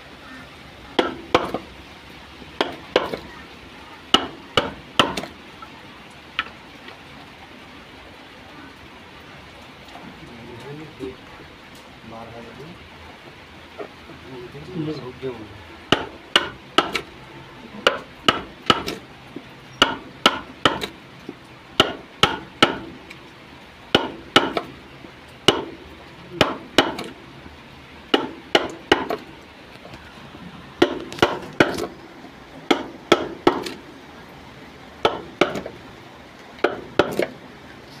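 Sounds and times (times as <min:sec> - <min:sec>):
mallet striking wood chisel: 0:01.0 - 0:01.6, 0:02.6 - 0:03.2, 0:04.1 - 0:05.3, 0:15.9 - 0:17.1, 0:17.8 - 0:19.0, 0:19.8 - 0:20.9, 0:21.8 - 0:22.9, 0:23.9 - 0:24.7, 0:25.5 - 0:25.7, 0:26.4 - 0:27.2, 0:28.1 - 0:29.2, 0:30.8 - 0:31.9, 0:32.7 - 0:33.8, 0:35.0 - 0:35.7, 0:36.6 - 0:37.3.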